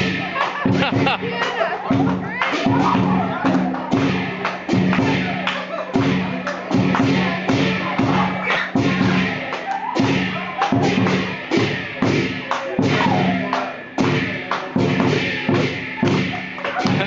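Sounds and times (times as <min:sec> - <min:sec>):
drum strikes: 0:00.0 - 0:17.0.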